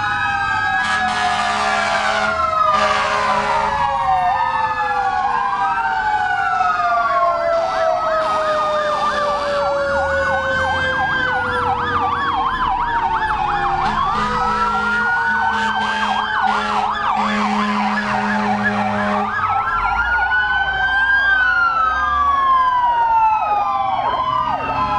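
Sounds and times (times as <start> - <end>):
fire engine sirens wailing: 0.0 - 24.9
warbling siren yelp: 0.0 - 24.9
low horn blasts: 0.8 - 3.8, 13.8 - 19.3.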